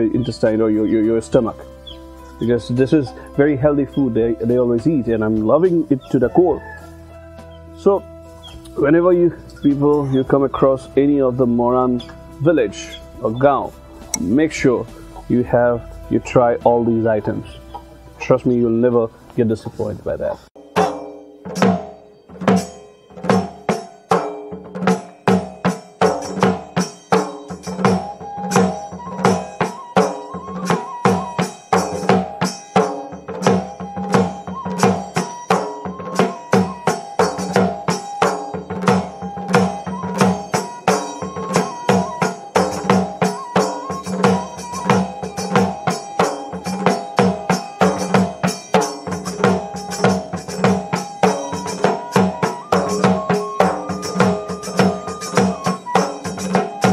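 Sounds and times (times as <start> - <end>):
melody of held notes: 0.0 - 56.9
dhol drums beating: 20.6 - 56.9.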